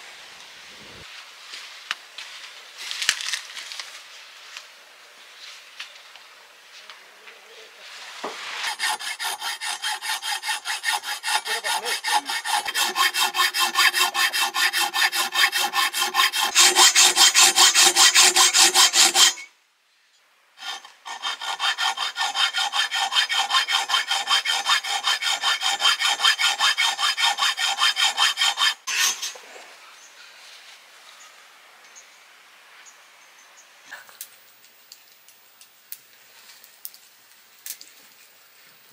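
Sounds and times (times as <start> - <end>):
fast rasping strokes: 8.5 - 19.5, 20.6 - 29.3.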